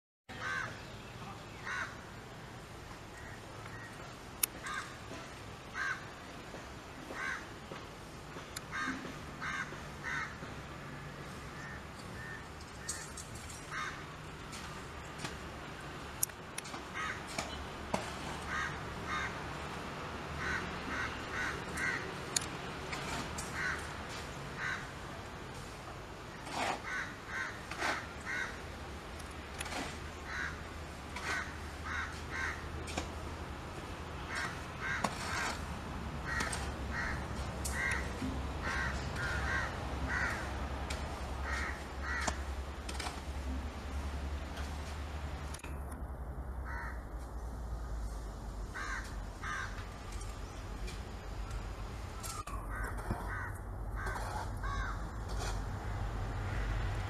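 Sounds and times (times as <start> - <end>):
crows cawing: 0.4 - 0.8, 1.6 - 2.0, 4.5 - 6.2, 7.1 - 7.5, 8.6 - 10.5, 11.5 - 14.2, 16.9 - 17.3, 18.4 - 19.4, 20.4 - 22.2, 23.4 - 23.9, 24.6 - 25.0, 26.5 - 28.6, 29.7 - 32.7, 34.2 - 35.6, 36.2 - 40.5, 41.4 - 42.4, 46.6 - 47.0, 48.7 - 49.8, 52.2 - 55.1.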